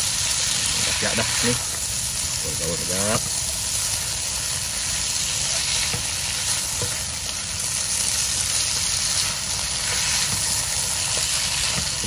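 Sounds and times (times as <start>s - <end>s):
food sizzling in a wok: 0.0s - 12.0s
spatula scraping and tapping pan: 6.7s - 7.0s.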